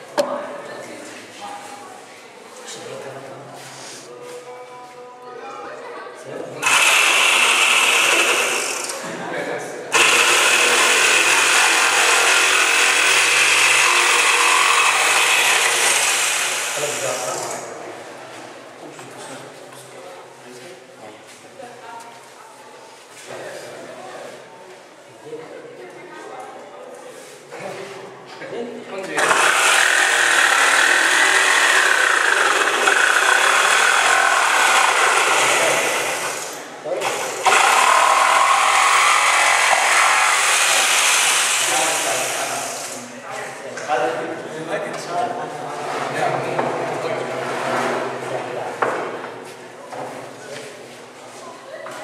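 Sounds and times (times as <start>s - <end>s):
power tool motor whining: 6.6s - 9.0s, 9.9s - 17.6s, 29.2s - 43.0s.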